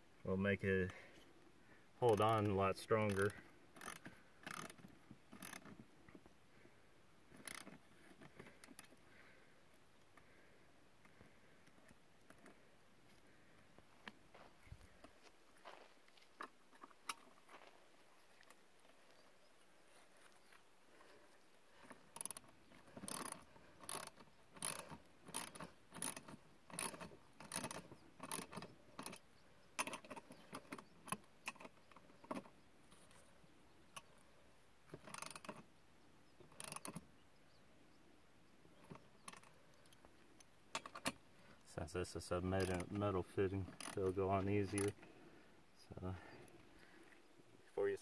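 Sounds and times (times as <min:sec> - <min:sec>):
ratchet wrench clicking: 0:03.1 - 0:04.8, 0:05.4 - 0:05.7, 0:07.4 - 0:07.7, 0:22.2 - 0:22.4, 0:23.0 - 0:29.2, 0:35.1 - 0:35.6, 0:36.6 - 0:37.0, 0:42.6 - 0:42.8, 0:43.7 - 0:44.0.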